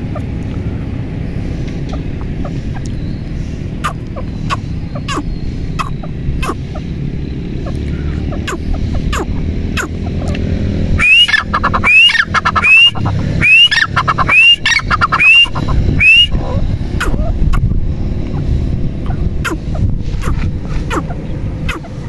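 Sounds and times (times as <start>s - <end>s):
bird calling: 0.0s - 22.0s.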